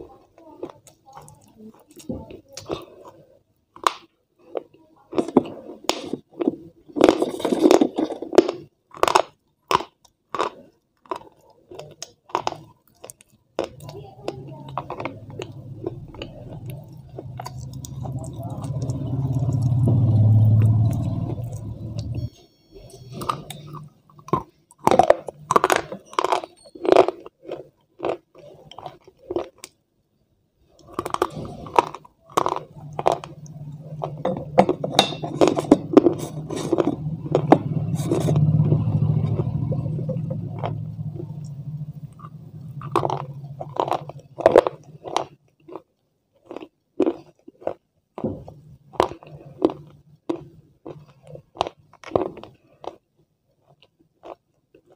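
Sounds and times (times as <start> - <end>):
crunchy chewing: 0.6 - 29.8, 30.8 - 54.9
low rumble: 14.7 - 24.1, 35.4 - 44.3.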